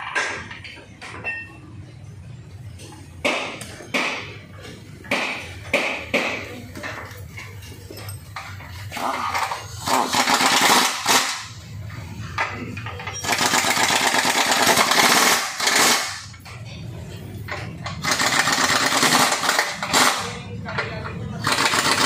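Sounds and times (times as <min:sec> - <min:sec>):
impact wrench hammering: 0:03.2 - 0:04.4, 0:09.1 - 0:11.6, 0:12.4 - 0:16.5, 0:17.5 - 0:20.4, 0:21.4 - 0:22.0.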